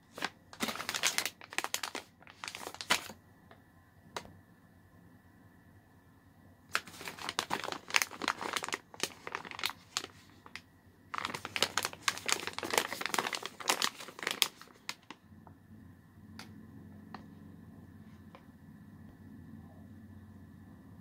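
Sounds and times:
plastic pouches crinkling: 0.0s - 3.2s, 6.7s - 15.2s.

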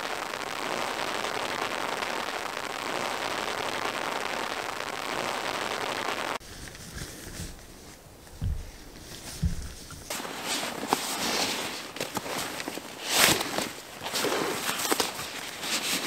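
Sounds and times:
rain on a tarp: 0.0s - 16.0s
soft low thumps: 7.4s - 10.1s.

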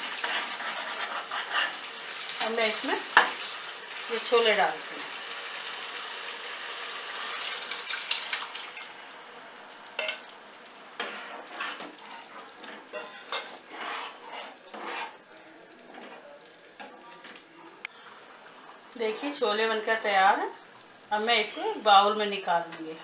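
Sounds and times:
metal ladle scraping a pan: 0.0s - 1.9s, 11.0s - 15.2s
food sizzling in a pan: 0.0s - 23.0s.

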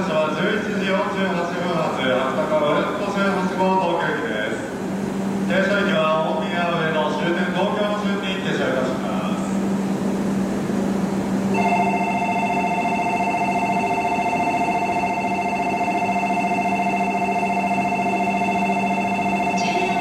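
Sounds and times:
low hum: 0.0s - 20.0s
electronic two-tone departure bell: 11.5s - 20.0s.

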